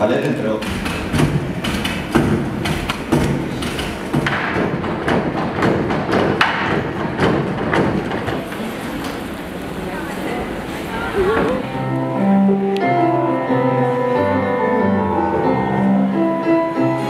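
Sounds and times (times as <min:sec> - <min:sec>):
brooms thumping on stage floor: 0:00.2 - 0:08.5.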